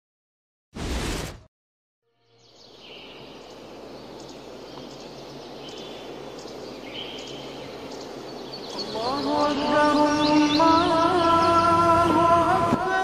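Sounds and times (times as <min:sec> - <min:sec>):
loud burst: 0:00.8 - 0:01.5
birds chirping: 0:02.3 - 0:13.0
outdoor noise wash: 0:02.6 - 0:13.0.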